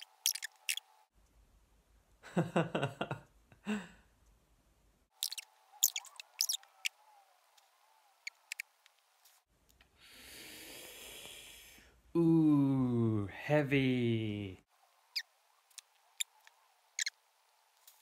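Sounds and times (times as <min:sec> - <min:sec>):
sped-up man laughing: 0:02.2 - 0:04.0
breathy blow through lips: 0:10.0 - 0:12.0.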